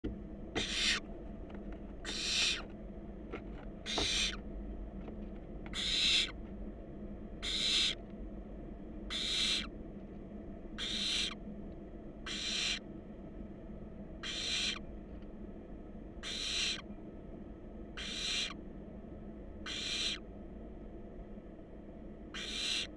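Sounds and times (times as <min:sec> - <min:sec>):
owl nestlings hissing calls: 0:00.6 - 0:01.1, 0:02.0 - 0:02.7, 0:03.8 - 0:04.4, 0:05.7 - 0:06.4, 0:07.4 - 0:08.0, 0:09.1 - 0:09.7, 0:10.8 - 0:11.4, 0:12.3 - 0:12.8, 0:14.2 - 0:14.8, 0:16.2 - 0:16.8, 0:18.0 - 0:18.6, 0:19.6 - 0:20.3, 0:22.4 - 0:22.9.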